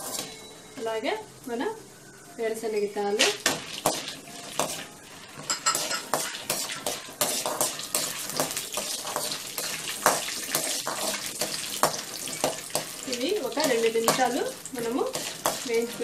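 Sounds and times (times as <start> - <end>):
steel spoon scraping a pan: 0.0 - 0.5, 3.8 - 16.0
oil sizzling: 0.0 - 16.0.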